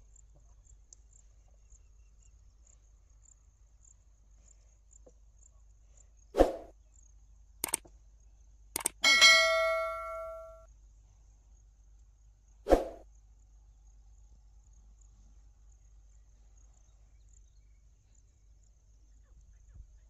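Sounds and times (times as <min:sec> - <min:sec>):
mouse clicks: 0:07.6 - 0:07.9, 0:08.8 - 0:09.0
notification bell ding: 0:09.0 - 0:10.6.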